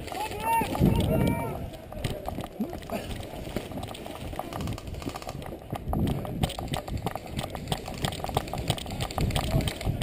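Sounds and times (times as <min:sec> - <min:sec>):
camera knocks and jolts: 0:02.0 - 0:10.0.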